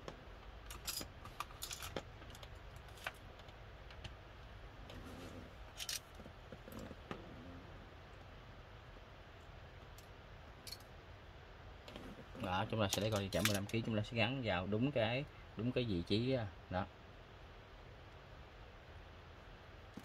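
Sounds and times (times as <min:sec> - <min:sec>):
faint low hum: 0:00.0 - 0:20.0
small parts clicking and rattling: 0:00.4 - 0:04.1, 0:05.7 - 0:06.9, 0:09.9 - 0:10.9, 0:12.8 - 0:13.9.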